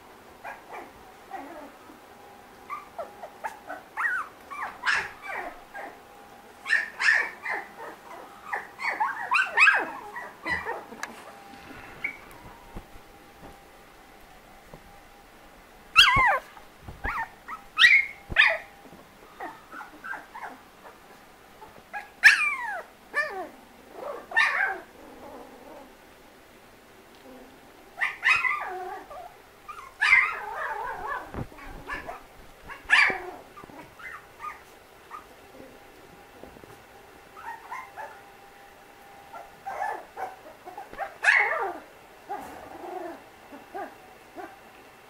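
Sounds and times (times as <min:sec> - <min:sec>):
puppies yelping and squealing: 0:02.7 - 0:06.0, 0:06.6 - 0:12.4, 0:16.0 - 0:18.7, 0:19.4 - 0:24.9, 0:28.0 - 0:35.7, 0:37.4 - 0:38.2, 0:39.3 - 0:44.5.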